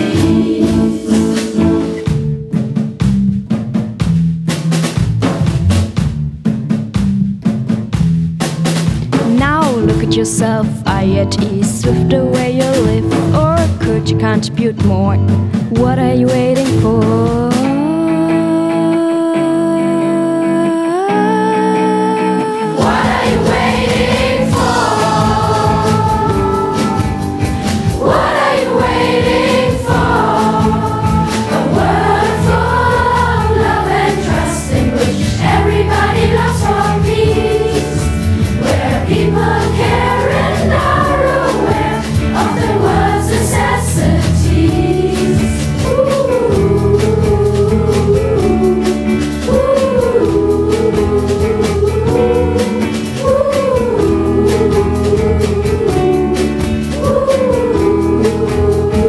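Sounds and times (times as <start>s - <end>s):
youth choir singing pop song: 0.0s - 2.1s, 16.3s - 59.0s
band accompaniment: 0.0s - 18.1s, 22.2s - 59.0s.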